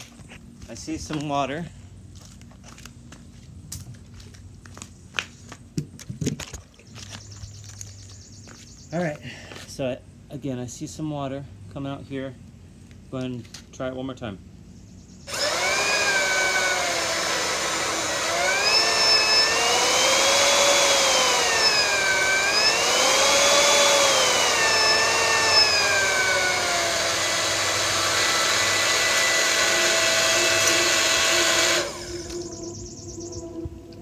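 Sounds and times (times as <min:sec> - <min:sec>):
pump motor whirring and whining: 0:15.2 - 0:34.0.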